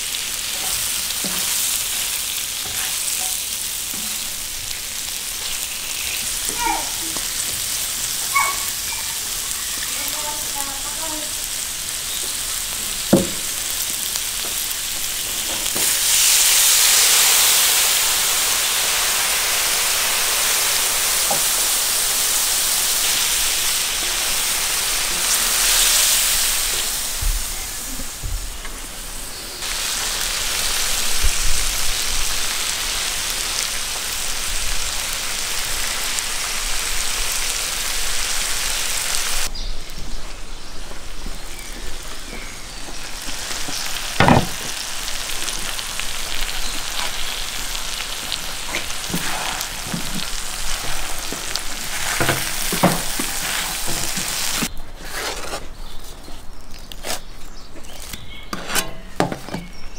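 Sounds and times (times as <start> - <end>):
meat and onions sizzling: 0.0 - 54.7
spatula scraping pan: 2.6 - 4.3, 6.4 - 9.9, 48.8 - 51.2, 58.5 - 59.2.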